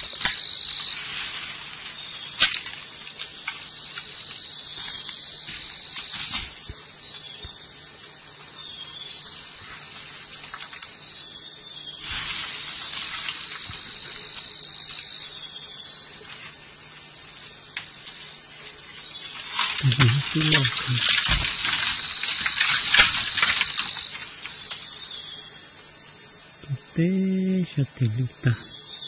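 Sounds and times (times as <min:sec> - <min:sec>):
brush rustling and snapping: 0:00.0 - 0:07.6, 0:09.5 - 0:11.0, 0:12.0 - 0:15.4, 0:16.2 - 0:25.0
insects calling shrill chorus: 0:00.0 - 0:29.0
lower insect tone: 0:00.0 - 0:29.0.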